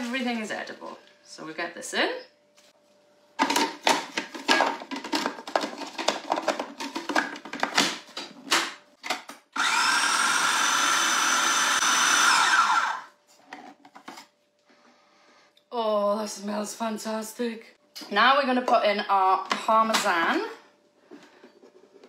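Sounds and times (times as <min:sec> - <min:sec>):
food processor chopping: 0:09.6 - 0:13.1.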